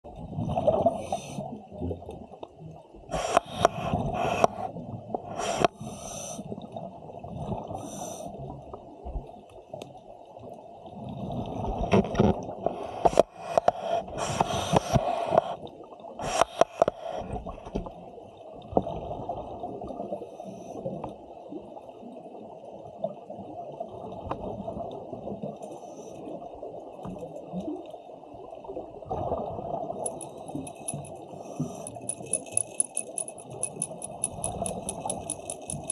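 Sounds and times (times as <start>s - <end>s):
diver breathing through a regulator: 0.8s - 1.5s, 3.1s - 6.5s, 7.7s - 8.4s, 12.6s - 15.6s, 16.2s - 17.5s, 30.1s - 32.7s.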